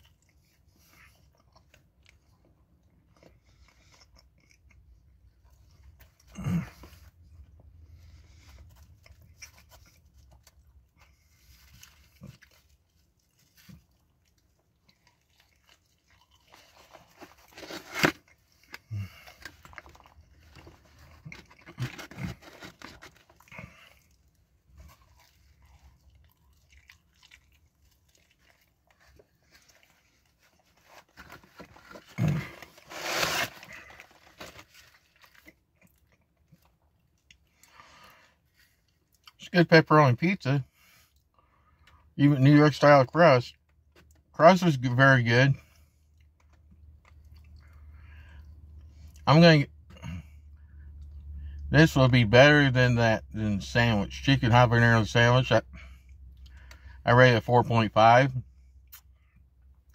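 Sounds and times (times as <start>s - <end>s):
person chewing pizza: 0.0s - 39.4s, 45.7s - 49.2s.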